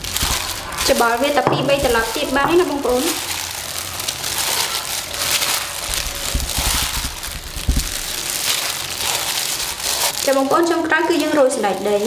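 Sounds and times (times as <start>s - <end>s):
rustling of salad greens: 0.0s - 12.0s
low thuds: 5.8s - 8.2s.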